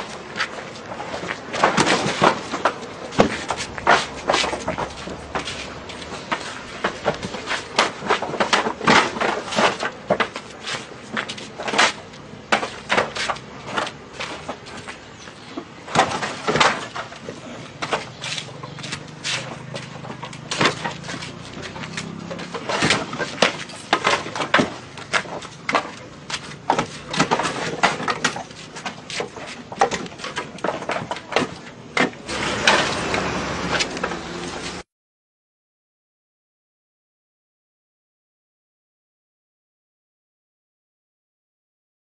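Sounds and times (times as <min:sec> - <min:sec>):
bricks knocking together: 0:15.6 - 0:33.0.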